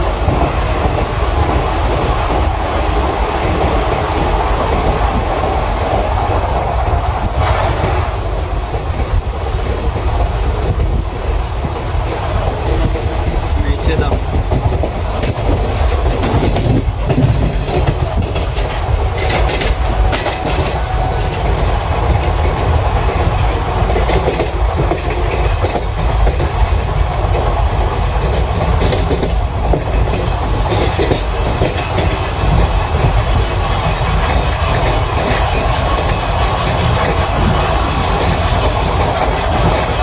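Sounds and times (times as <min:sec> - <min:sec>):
train wheels rumbling: 0:00.0 - 0:40.0
wheels clicking over rail joints: 0:12.6 - 0:40.0.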